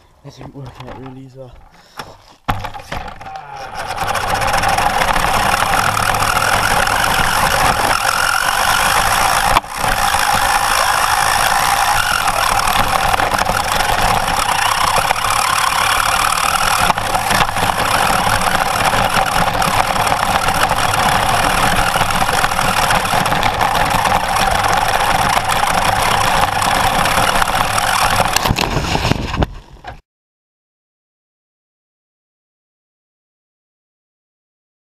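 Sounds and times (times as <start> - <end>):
plastic body rattling: 0.4 - 30.0
electric motor whining: 3.3 - 28.7.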